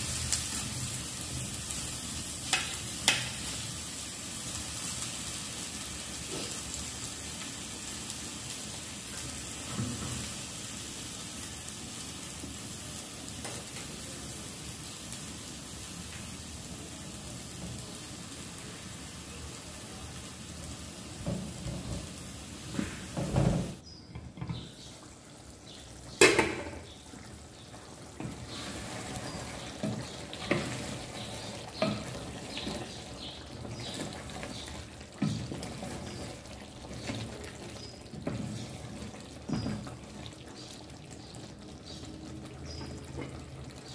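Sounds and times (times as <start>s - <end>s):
food sizzling in a pan: 0.0s - 23.8s, 24.8s - 43.9s
pots and utensils clanking: 2.4s - 3.5s, 26.2s - 27.3s, 28.1s - 40.1s, 42.6s - 43.9s.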